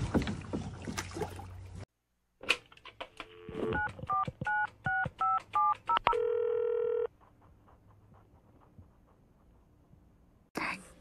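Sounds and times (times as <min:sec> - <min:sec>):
steady telephone tone: 0:06.0 - 0:07.1.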